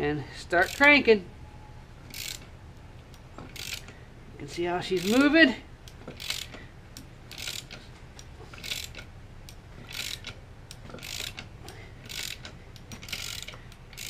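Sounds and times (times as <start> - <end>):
ratchet wrench clicking: 0.6 - 1.1, 2.1 - 2.5, 3.1 - 4.0, 4.8 - 14.0.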